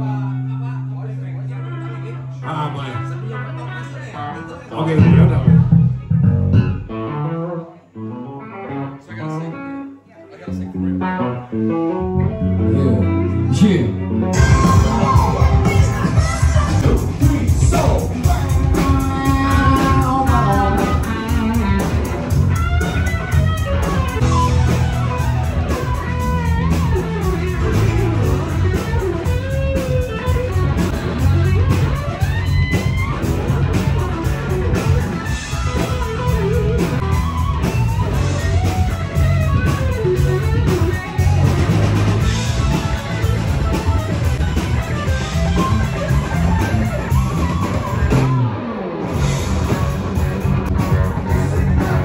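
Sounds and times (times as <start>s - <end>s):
live rock band playing: 4.8s - 52.0s
electric guitar solo: 5.0s - 52.0s.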